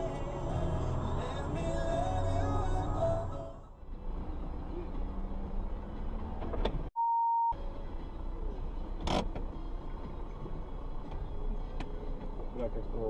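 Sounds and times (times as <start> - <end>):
car road and engine rumble: 0.0 - 7.0, 7.6 - 13.0
steady bleep: 7.0 - 7.6.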